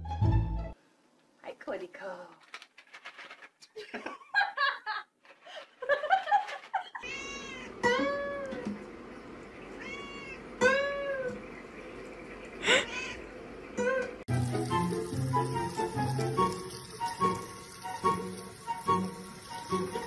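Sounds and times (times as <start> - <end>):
cat meowing loudly: 7.0 - 8.5, 9.8 - 11.3, 12.8 - 13.2.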